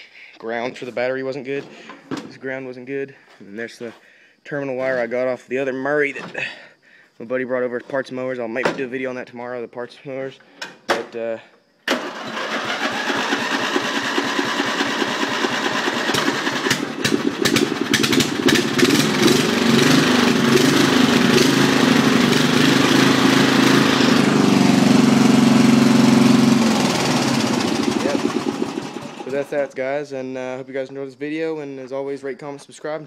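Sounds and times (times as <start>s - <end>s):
lawn mower engine running: 11.9s - 29.7s.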